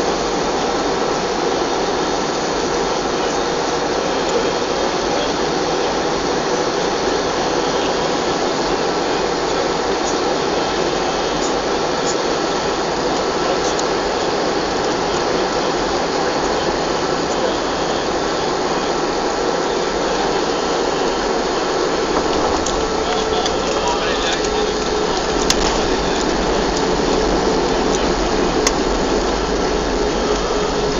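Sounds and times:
aircraft cabin engine rush: 0:00.0 - 0:30.9.

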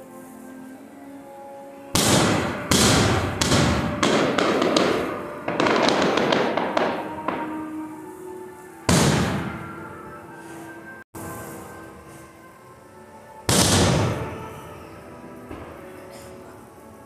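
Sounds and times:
faint background music: 0:00.0 - 0:17.0
fireworks banging and crackling: 0:02.0 - 0:07.9, 0:08.8 - 0:10.1, 0:13.5 - 0:14.8.

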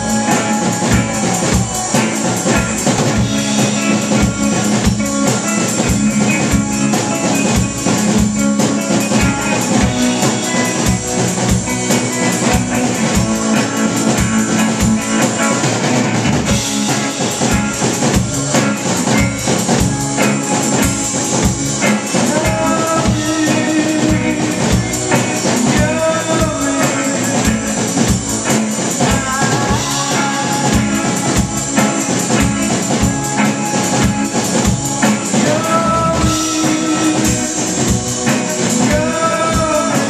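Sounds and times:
drum kit beating: 0:00.0 - 0:40.0
electric guitars: 0:00.0 - 0:40.0
man singing: 0:18.0 - 0:19.2, 0:21.9 - 0:31.9, 0:35.0 - 0:40.0.

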